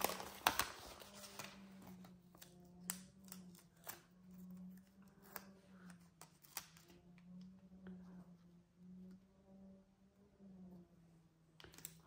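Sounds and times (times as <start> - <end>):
paper rustling: 0.0 - 2.5
low steady hum: 0.0 - 12.0.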